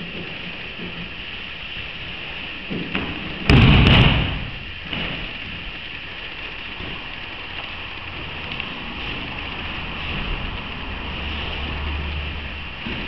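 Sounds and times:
steady background hiss: 0:00.0 - 0:13.0
body thudding on a mat: 0:02.7 - 0:05.4.

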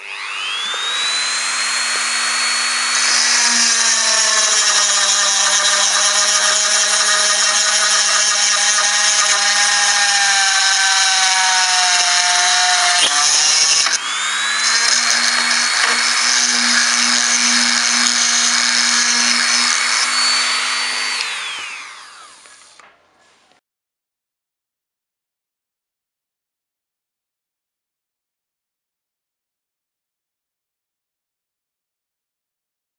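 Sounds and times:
rotary tool grinding glass: 0:00.4 - 0:22.8.

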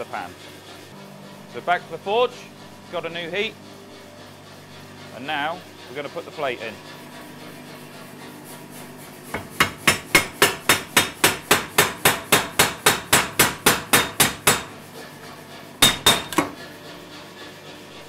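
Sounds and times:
power hammer blows on hot steel: 0:09.3 - 0:14.8, 0:15.8 - 0:16.7.

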